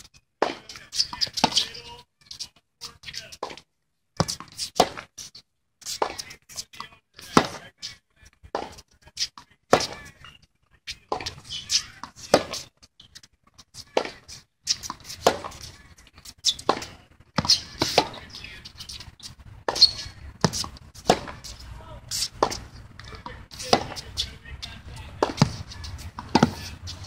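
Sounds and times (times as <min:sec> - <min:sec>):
racket hitting tennis ball: 0:00.4 - 0:01.8, 0:04.2 - 0:05.1, 0:05.9 - 0:06.4, 0:08.5 - 0:08.8, 0:09.7 - 0:10.2, 0:11.1 - 0:12.7, 0:13.8 - 0:27.0
footsteps on court: 0:13.8 - 0:27.0
ball bouncing: 0:14.8 - 0:15.8, 0:16.5 - 0:18.3, 0:19.7 - 0:21.6, 0:22.3 - 0:24.2, 0:24.9 - 0:27.0.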